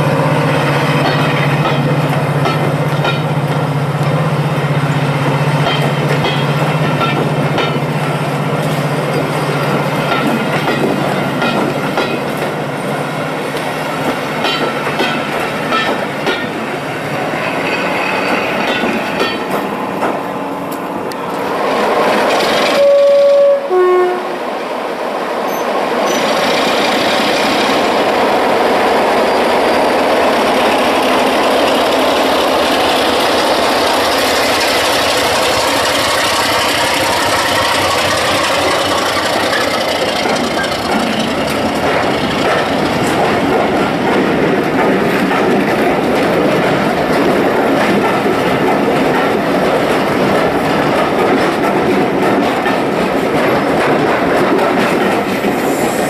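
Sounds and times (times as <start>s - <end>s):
train coaches rumbling on track: 0.0s - 56.0s
wheels clicking on rail joints: 5.6s - 22.9s, 30.3s - 56.0s
two-tone locomotive horn: 22.7s - 24.4s
diesel locomotive engine running: 26.1s - 56.0s.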